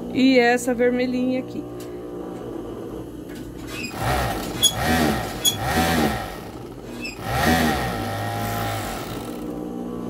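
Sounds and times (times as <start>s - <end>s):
sewing machine running: 3.8s - 9.6s.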